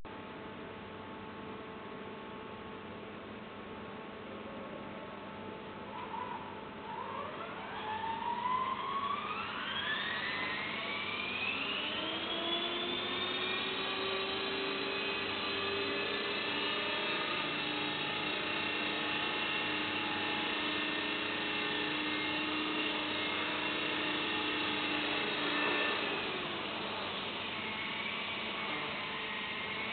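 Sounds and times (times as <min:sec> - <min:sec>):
electric helicopter motor whine: 0:06.8 - 0:29.9.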